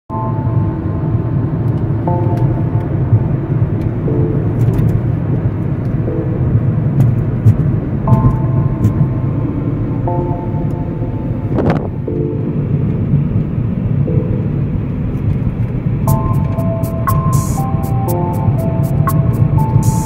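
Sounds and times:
music with held notes: 0.1s - 20.0s
car cabin road rumble: 1.6s - 10.0s.

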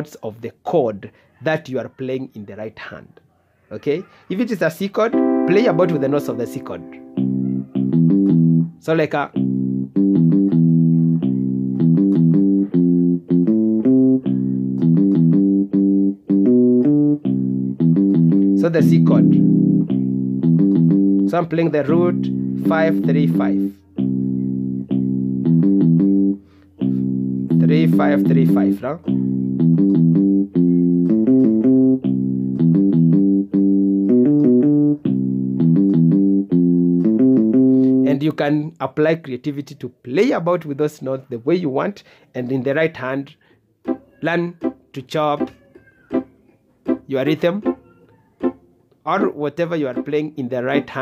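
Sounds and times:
keyboard bassline with chords: 5.1s - 38.3s, 43.9s - 51.0s.

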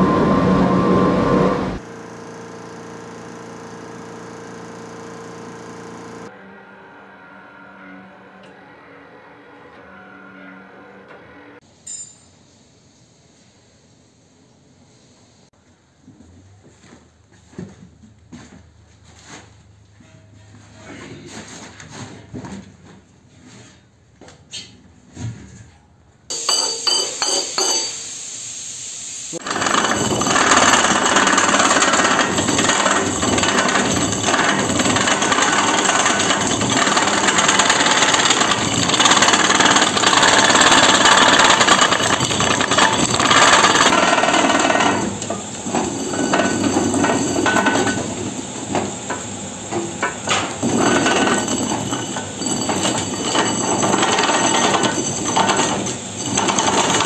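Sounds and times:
machine humming: 0.0s - 10.1s, 29.4s - 57.0s
rasp grinding tyre tread: 29.4s - 48.2s.

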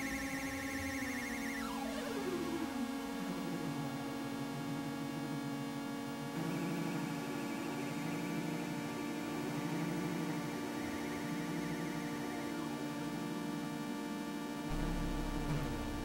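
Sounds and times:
synthesizer drone: 9.2s - 16.0s.

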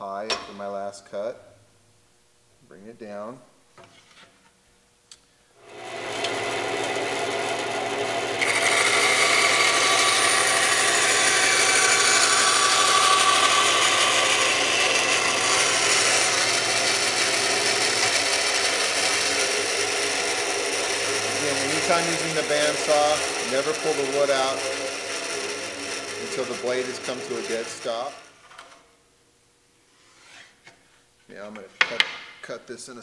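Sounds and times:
band saw motor hum: 5.6s - 28.8s
saw blade cutting wood: 5.6s - 28.8s.

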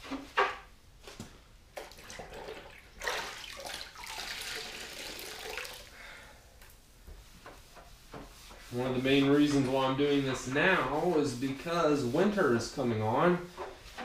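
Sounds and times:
wet sponge scrubbing: 7.2s - 14.0s.

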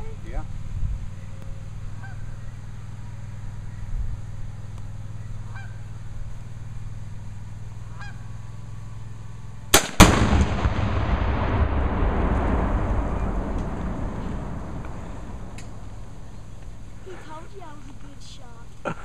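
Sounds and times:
faint bird calls: 1.1s - 9.0s
long rumble: 8.4s - 18.2s
rifle shot: 9.7s - 16.9s
explosion blast: 9.8s - 17.1s.

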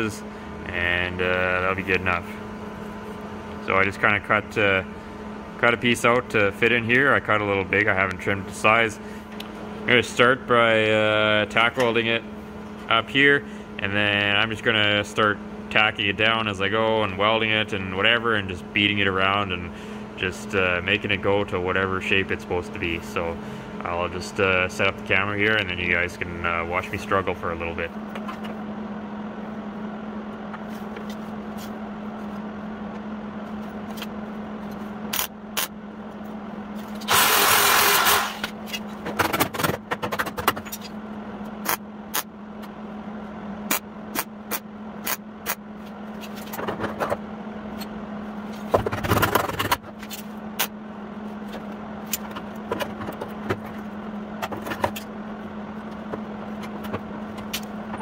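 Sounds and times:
steady hum: 0.0s - 58.0s
welding arc crackling: 37.0s - 38.4s.

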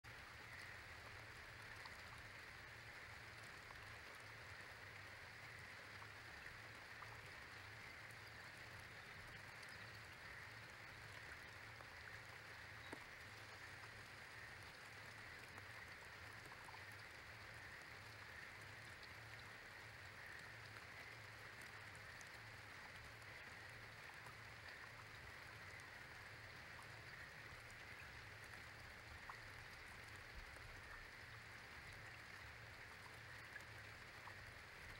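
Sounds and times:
light rain: 0.0s - 34.9s
soft ticks of drops: 12.8s - 13.3s.

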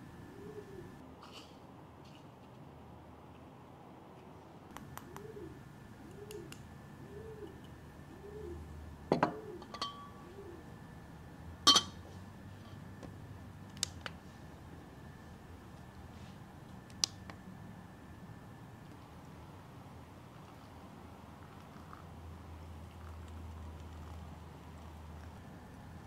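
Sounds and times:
dove cooing: 0.0s - 1.0s, 5.0s - 10.8s
ceramic and glass clinking: 9.1s - 10.2s, 11.7s - 12.0s.

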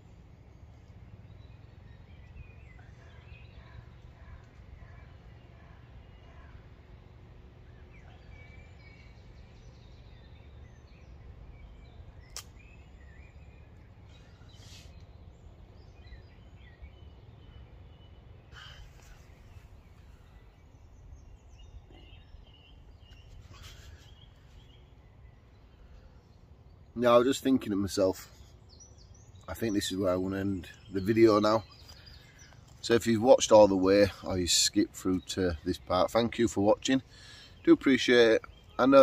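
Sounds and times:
faint birdsong: 0.0s - 39.0s
sharp click: 12.3s - 12.6s.

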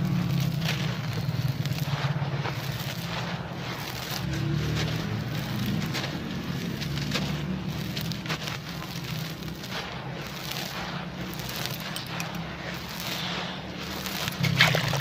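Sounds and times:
hands crumbling gritty powder: 0.0s - 15.0s.

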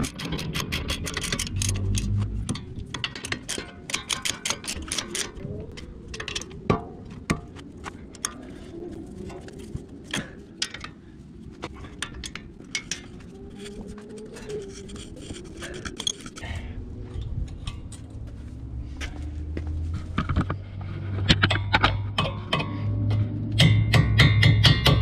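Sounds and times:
ratchet clicking: 0.0s - 5.3s
metal parts knocking: 0.0s - 5.4s, 11.9s - 16.5s.

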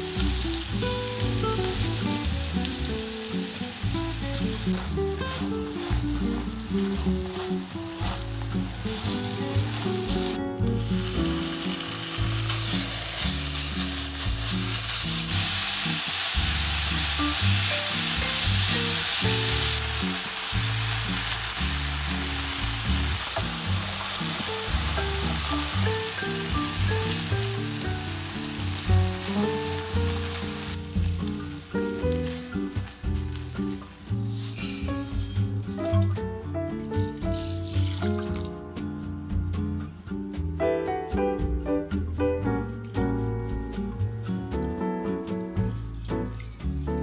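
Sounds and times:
food sizzling in oil: 0.0s - 36.0s, 37.1s - 38.5s
soft background music: 0.0s - 47.0s.

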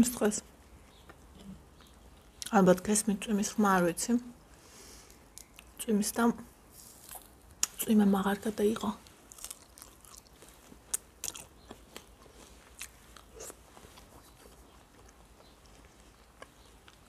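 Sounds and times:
chewing crunchy food: 0.8s - 2.5s, 6.8s - 7.8s, 8.8s - 17.0s.

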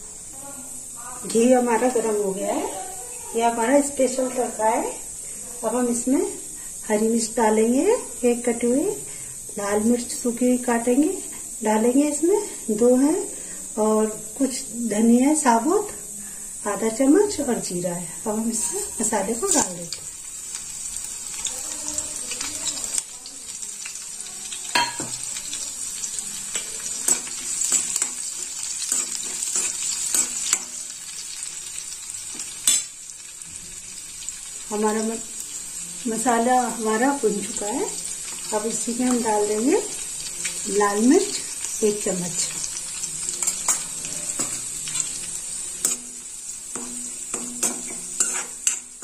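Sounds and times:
spices sizzling in hot oil: 0.0s - 49.0s
spatula stirring and scraping: 18.4s - 20.0s, 26.5s - 30.9s, 43.3s - 49.0s.

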